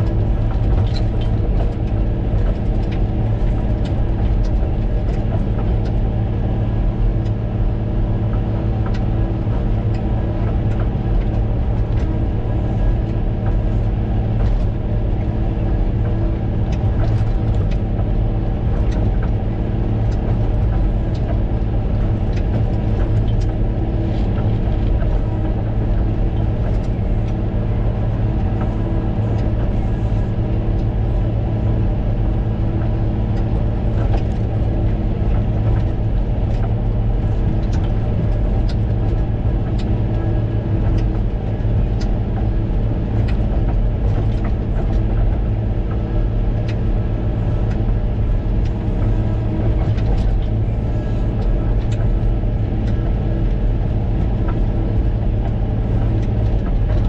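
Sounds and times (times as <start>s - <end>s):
diesel engine running: 0.0s - 57.0s
light ticks and rattles: 13.0s - 31.4s.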